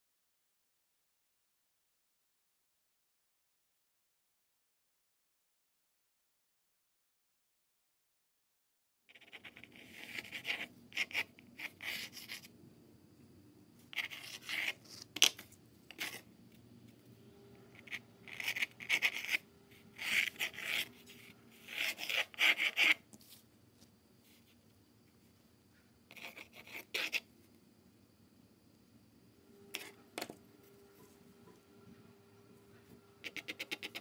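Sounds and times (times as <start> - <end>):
pencil scratching on paper: 9.1 - 12.5, 13.8 - 16.3, 17.7 - 23.4, 26.1 - 27.3, 29.8 - 30.4, 32.8 - 34.0.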